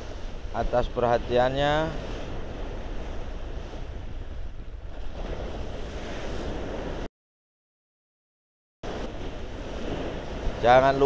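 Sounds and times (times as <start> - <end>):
wind buffeting microphone: 0.0 - 7.1, 8.8 - 11.0
water rushing against ship hull: 8.8 - 11.0.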